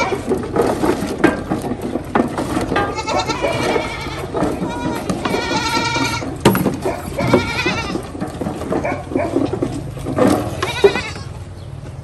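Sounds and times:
goats bleating: 0.0 - 0.3, 2.8 - 8.2, 10.4 - 11.4
knocks: 0.1 - 11.0.

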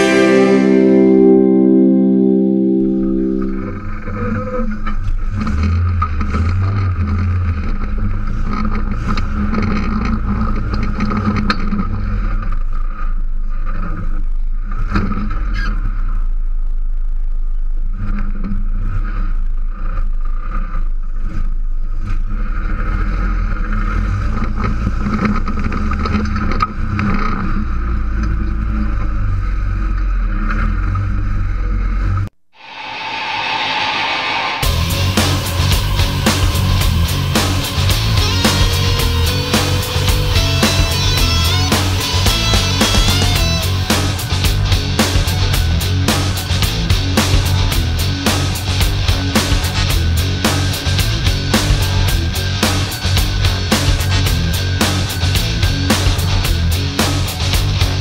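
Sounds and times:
buggy engine running: 4.0 - 32.3, 34.6 - 58.0.

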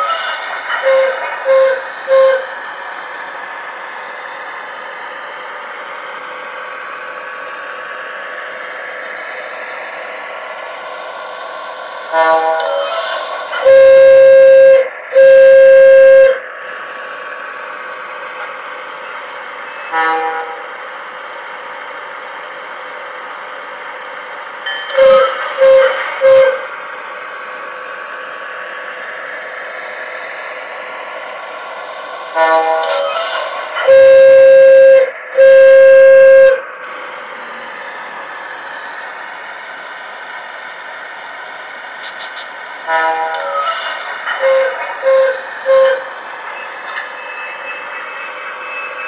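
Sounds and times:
long distorted horn blasts: 0.8 - 2.6, 12.1 - 16.4, 19.7 - 20.8, 24.9 - 26.7, 32.3 - 36.7, 42.8 - 46.1
short horn toots: 19.8 - 20.6.

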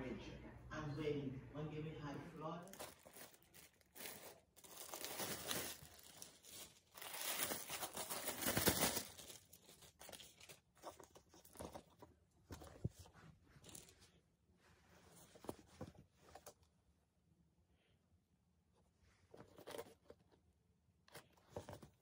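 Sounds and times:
plastic bag crinkling: 2.6 - 12.0.

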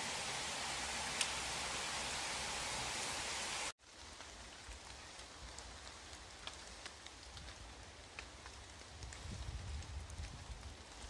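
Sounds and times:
rain hissing: 0.0 - 11.0
raindrops ticking: 0.6 - 2.1, 3.8 - 11.0.

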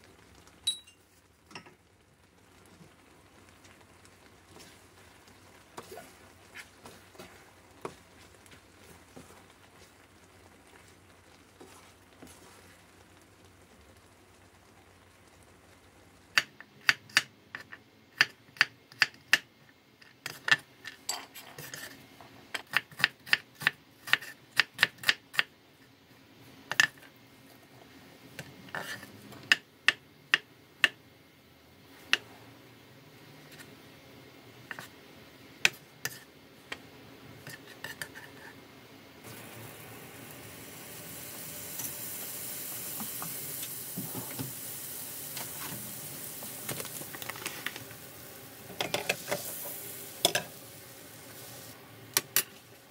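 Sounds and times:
wooden spatula scraping a pan: 4.5 - 10.0, 11.6 - 12.8, 21.4 - 22.0, 28.7 - 29.2, 35.7 - 36.4, 37.4 - 38.6.

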